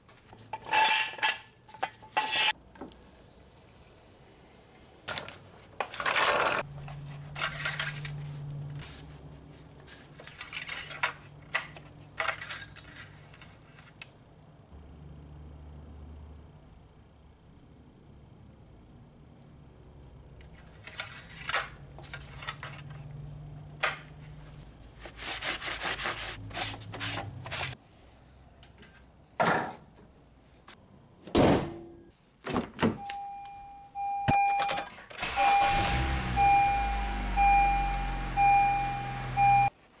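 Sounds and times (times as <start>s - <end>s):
car chime beeping: 33.0s - 39.7s
car engine starting and idling: 35.2s - 39.7s.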